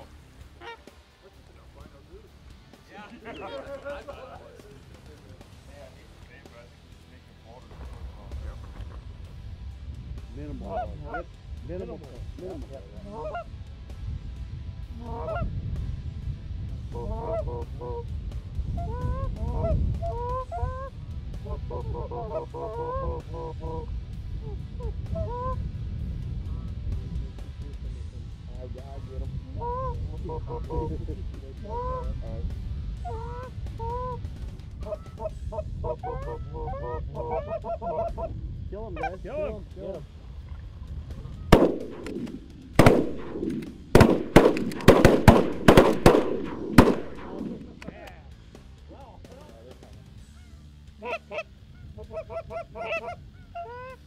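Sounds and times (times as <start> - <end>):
goose clucking: 0.0 - 1.0, 13.0 - 13.5, 18.9 - 25.6, 29.6 - 30.9, 34.8 - 38.3, 50.4 - 54.0
goose honking: 0.0 - 1.0, 13.0 - 13.5, 15.0 - 15.4, 21.5 - 23.9, 34.8 - 38.3, 50.4 - 54.0
low rumble: 4.6 - 22.0, 22.7 - 48.0
shotgun bangs with echo: 41.5 - 47.9.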